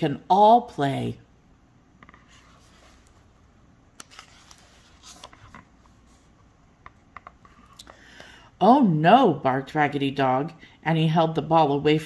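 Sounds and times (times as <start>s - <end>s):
page turning rustle: 2.1s - 3.3s, 3.9s - 6.3s.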